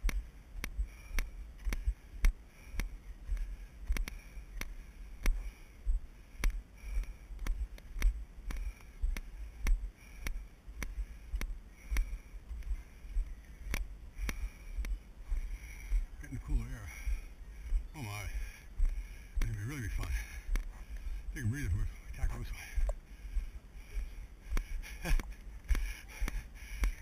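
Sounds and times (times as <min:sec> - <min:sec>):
footsteps on dirt trail: 0:00.0 - 0:23.1.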